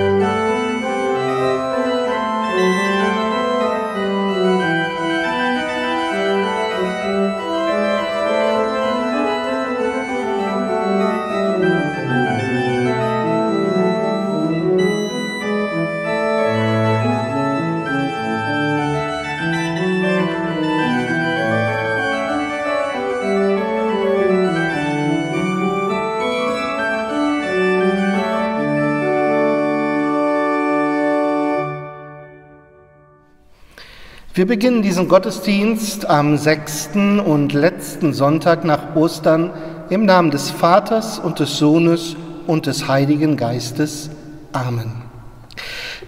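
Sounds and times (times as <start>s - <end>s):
pipe organ playing: 0.0s - 45.6s.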